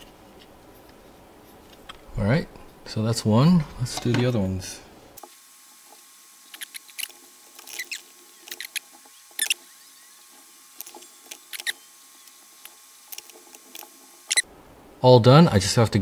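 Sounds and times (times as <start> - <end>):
fingernails scratching and clicking: 6.5 - 9.6, 10.8 - 14.4.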